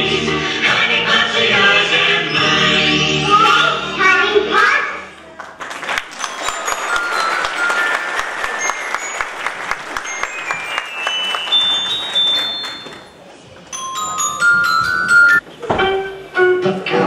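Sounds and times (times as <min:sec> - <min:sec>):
audience applauding: 0:05.4 - 0:13.1
bell-like chiming notes: 0:06.2 - 0:15.4.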